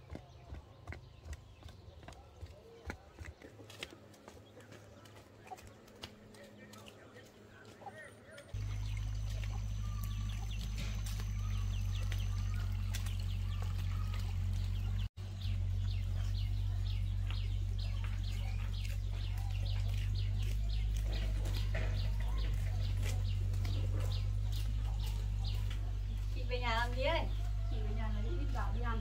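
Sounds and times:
bird chirps: 0:07.6 - 0:29.0.

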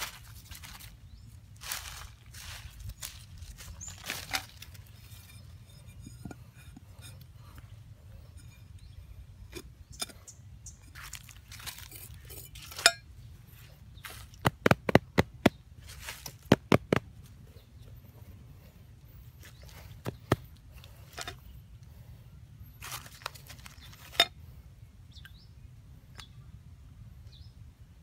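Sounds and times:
metal blade scraping soil: 0:00.0 - 0:14.4, 0:19.3 - 0:21.5, 0:22.8 - 0:24.4.

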